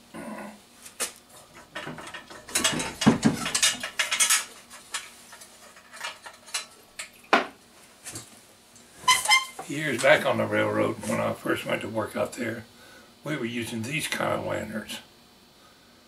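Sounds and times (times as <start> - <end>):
metal lantern clicking and rattling: 1.5 - 7.2.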